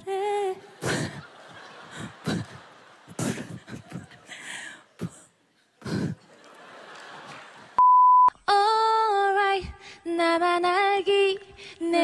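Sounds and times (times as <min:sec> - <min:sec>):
electronic beep: 0:07.8 - 0:08.3.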